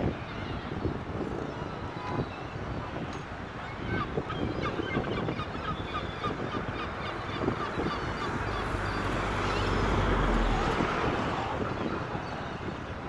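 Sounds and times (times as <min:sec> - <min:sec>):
wind rumble on microphone: 0:00.0 - 0:13.0
gulls calling: 0:03.4 - 0:13.0.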